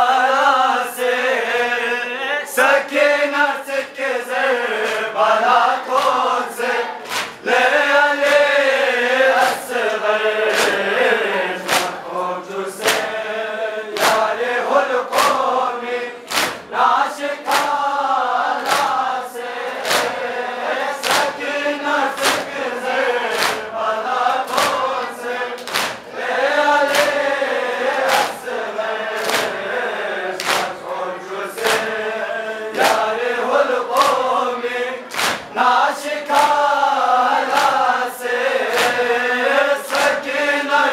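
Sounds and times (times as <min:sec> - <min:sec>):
men chanting in unison: 0:00.0 - 0:40.9
palms slapping chests: 0:07.0 - 0:07.4, 0:10.5 - 0:10.9, 0:11.6 - 0:12.1, 0:12.8 - 0:13.2, 0:13.9 - 0:14.4, 0:15.1 - 0:15.5, 0:16.2 - 0:16.7, 0:17.4 - 0:17.9, 0:18.6 - 0:19.0, 0:19.7 - 0:20.3, 0:21.0 - 0:21.4, 0:22.1 - 0:22.6, 0:23.2 - 0:23.8, 0:24.4 - 0:25.0, 0:25.6 - 0:26.1, 0:26.8 - 0:27.3, 0:28.0 - 0:28.5, 0:29.2 - 0:29.6, 0:30.4 - 0:30.9, 0:32.8 - 0:33.2, 0:33.9 - 0:34.3, 0:35.0 - 0:35.5, 0:36.3 - 0:36.7.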